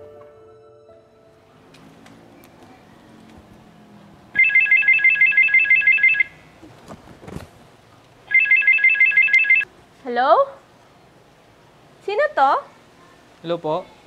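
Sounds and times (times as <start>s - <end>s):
phone ringtone trill: 4.4s - 6.4s, 8.3s - 9.6s.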